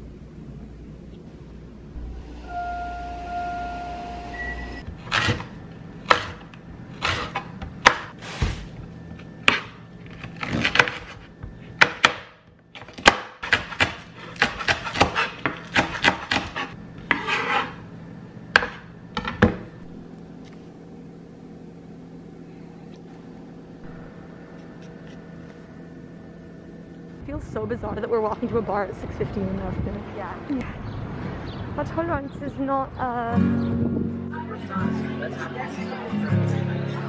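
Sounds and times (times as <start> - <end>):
faint room hum: 0.0 - 30.9
knife chopping on wooden board: 5.1 - 6.4, 7.0 - 8.1, 11.8 - 17.4, 18.6 - 18.8.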